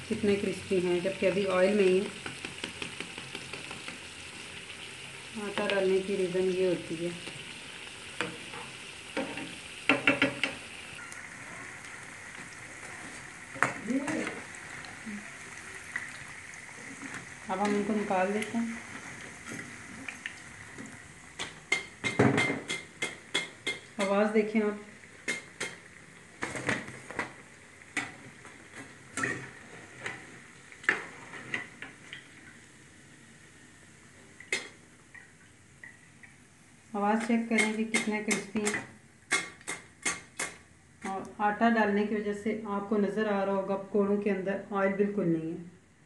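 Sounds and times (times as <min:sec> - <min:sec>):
oil sizzling while deep-frying: 0:00.0 - 0:42.0
spoon clicking against fritters: 0:37.6 - 0:40.6.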